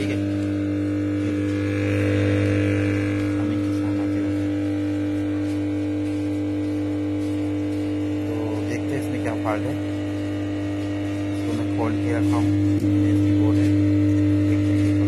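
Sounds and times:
subwoofer humming: 0:00.0 - 0:15.0.

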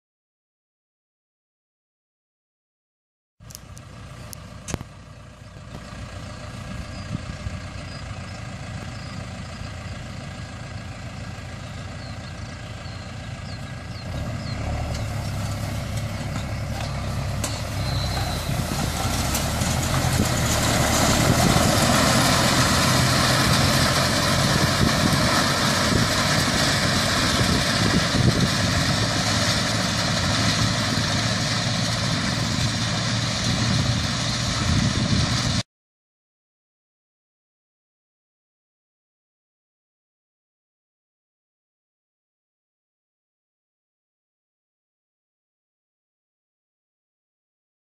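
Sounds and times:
engine running steadily: 0:03.4 - 0:35.6.

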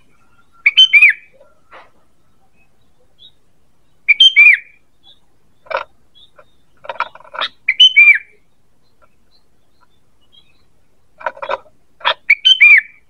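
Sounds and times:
bird whistled phrases: 0:00.0 - 0:02.6, 0:04.1 - 0:05.2, 0:07.7 - 0:08.3, 0:12.3 - 0:13.0
bird chattering: 0:00.0 - 0:13.0.

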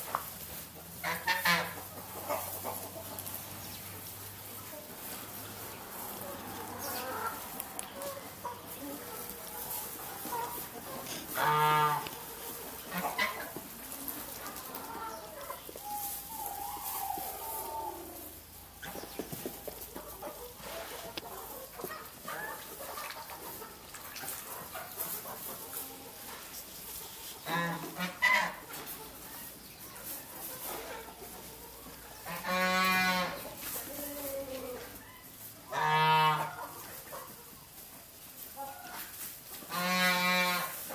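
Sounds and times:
chickens clucking: 0:00.0 - 0:40.9
drawn-out chicken call: 0:00.7 - 0:37.7, 0:38.5 - 0:40.9
farm animal long call: 0:10.9 - 0:12.2.

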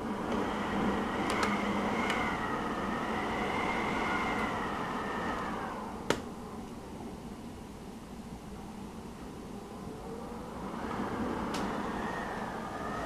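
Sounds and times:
rain hissing: 0:00.0 - 0:07.1
emergency siren wailing: 0:00.4 - 0:06.0.

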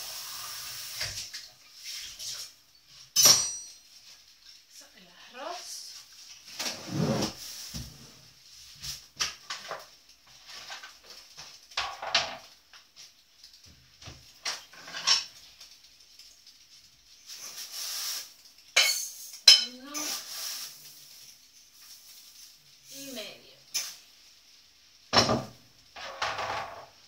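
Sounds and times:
dishes and utensils clattering: 0:03.1 - 0:03.9, 0:09.4 - 0:12.6, 0:14.2 - 0:15.5, 0:18.7 - 0:20.3, 0:25.1 - 0:27.0
sharp ringing clinks: 0:03.2 - 0:03.8.

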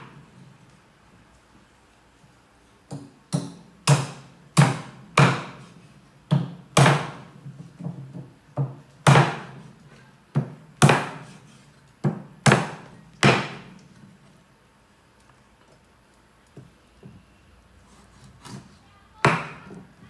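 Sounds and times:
cleaver chopping on wooden board: 0:02.9 - 0:05.7, 0:06.3 - 0:07.2, 0:08.6 - 0:09.6, 0:10.4 - 0:11.4, 0:12.0 - 0:13.7.

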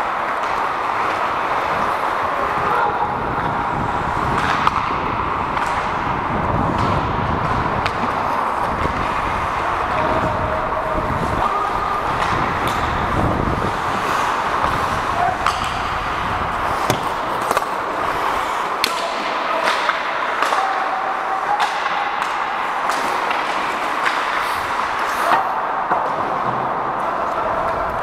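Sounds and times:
hockey sticks and puck clacking: 0:00.0 - 0:28.0
skate blades scraping ice: 0:06.7 - 0:10.0, 0:10.8 - 0:20.7.

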